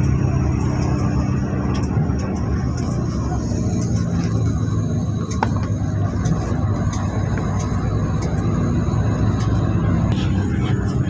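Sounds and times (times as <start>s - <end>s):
bus engine rumble: 0.0s - 11.0s.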